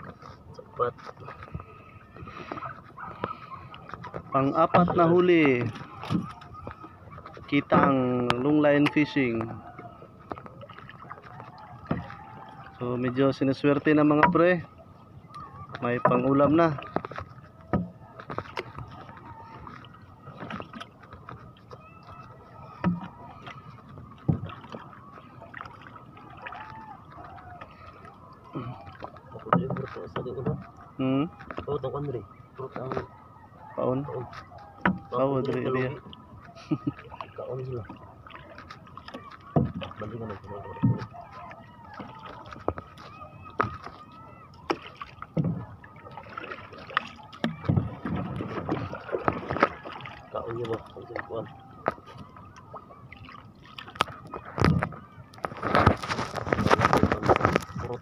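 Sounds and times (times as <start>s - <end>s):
knocks and thumps in boat hull: 2.6s - 8.4s, 10.3s - 12.6s, 14.1s - 14.5s, 15.7s - 19.3s, 29.3s - 30.8s, 34.3s - 35.2s, 37.8s - 44.0s, 44.7s - 51.0s.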